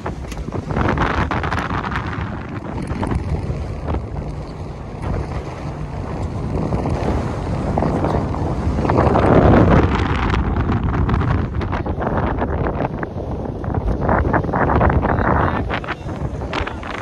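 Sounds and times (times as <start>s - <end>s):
boat running noise: 0.0s - 17.0s
water rushing: 0.0s - 17.0s
wind buffeting microphone: 0.0s - 17.0s.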